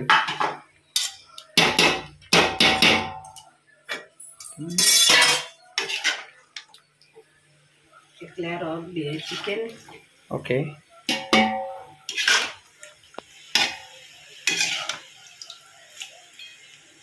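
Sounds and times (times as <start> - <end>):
utensils clanking on metal pots: 0.0 - 6.3, 11.0 - 12.7, 13.5 - 15.1
utensil scraping pot: 4.8 - 6.4, 9.1 - 9.7, 11.1 - 12.6, 14.5 - 15.0.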